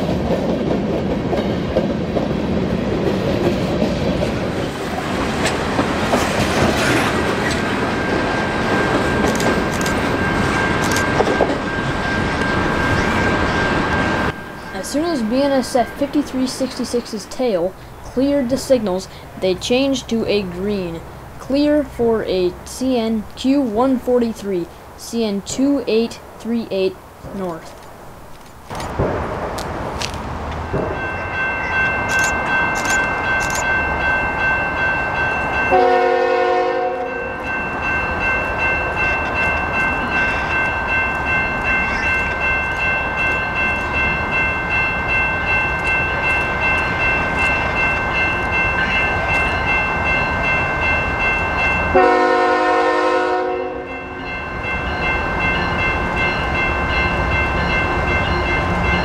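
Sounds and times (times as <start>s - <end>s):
train wheels rumbling and clattering: 0.0s - 23.4s, 27.2s - 35.8s, 36.9s - 52.2s
steady high-pitched squeal: 7.4s - 16.1s
locomotive horn blasts: 35.7s - 37.3s, 51.9s - 54.0s.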